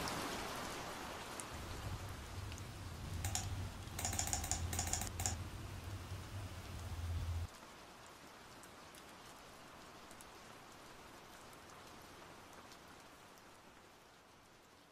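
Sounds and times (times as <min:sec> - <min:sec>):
low steady hum: 0:01.5 - 0:07.5
sharp computer clicks: 0:02.4 - 0:07.5.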